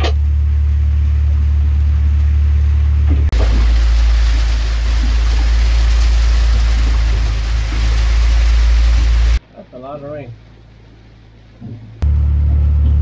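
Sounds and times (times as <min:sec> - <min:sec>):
low rumble of wind: 0:00.0 - 0:13.0
rain pelting a roof: 0:03.3 - 0:12.0.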